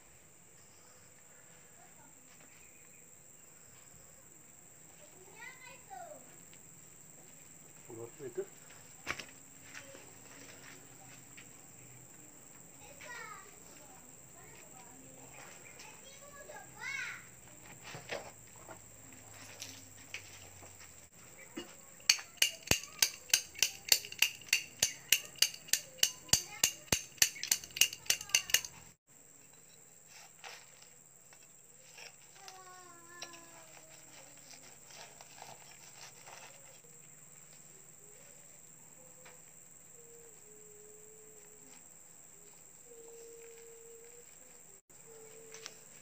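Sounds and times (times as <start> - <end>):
wrench hammering cement stove: 21.6 - 28.9.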